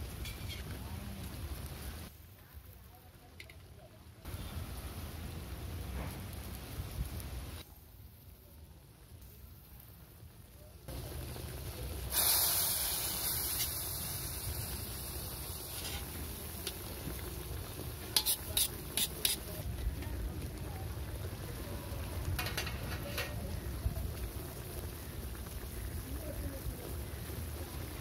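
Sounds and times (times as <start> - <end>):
fish sizzling in oil: 0.0 - 28.0
utensil clicking on pan: 18.1 - 19.6.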